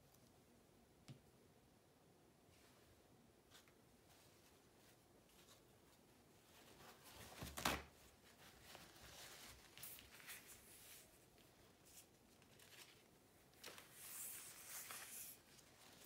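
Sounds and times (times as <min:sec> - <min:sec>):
paper rustling: 0:06.5 - 0:16.0.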